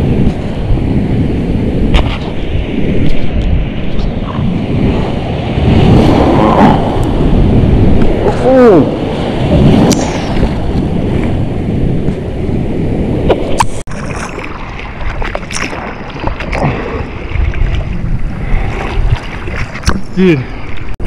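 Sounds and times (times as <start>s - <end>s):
rushing surf water: 0.0s - 21.0s
wind buffeting the microphone: 0.0s - 21.0s
sharp water splashes: 13.4s - 21.0s.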